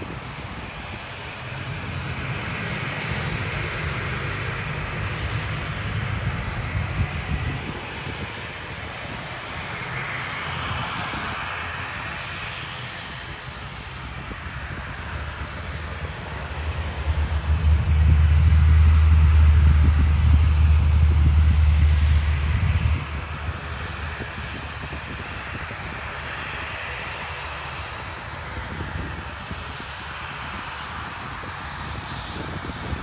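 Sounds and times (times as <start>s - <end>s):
heavy low rumble: 0.0s - 11.3s, 13.5s - 26.3s
aircraft engine roar: 0.0s - 33.0s.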